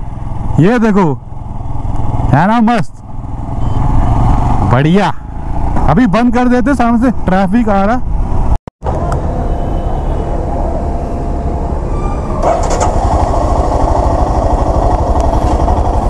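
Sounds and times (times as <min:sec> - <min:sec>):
motorcycle engine chugging: 0:11.6 - 0:16.0.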